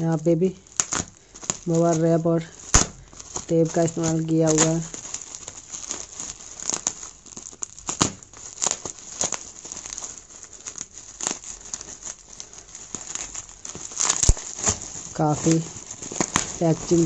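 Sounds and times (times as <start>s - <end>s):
bubble wrap crinkling and crackling: 0.0s - 17.0s.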